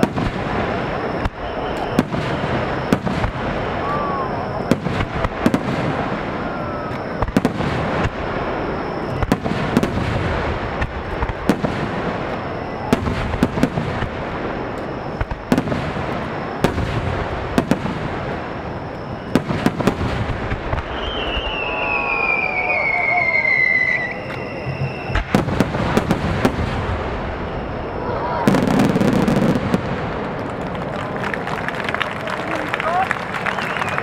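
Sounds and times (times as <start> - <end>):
falling firework whistle: 0.0 - 34.0
fireworks bursting: 0.0 - 34.0
fireworks crackle and rumble: 0.0 - 34.0.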